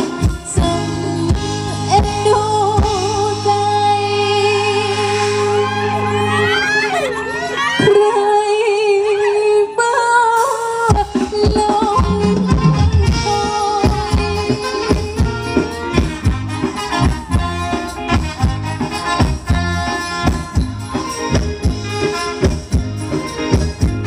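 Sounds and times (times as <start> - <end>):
drum kit beat: 0.0 - 6.7, 10.9 - 24.0
instrumental melody: 12.0 - 24.0.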